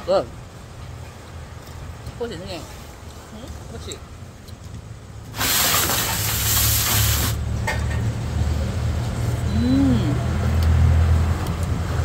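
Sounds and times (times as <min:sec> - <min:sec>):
vehicle engine rumble: 0:02.8 - 0:12.0
loud hiss: 0:05.3 - 0:07.4.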